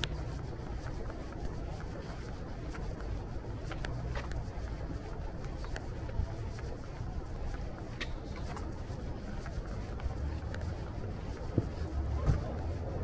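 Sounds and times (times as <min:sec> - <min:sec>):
faint distant voices: 0:00.0 - 0:13.0
traffic rumble: 0:00.0 - 0:13.0.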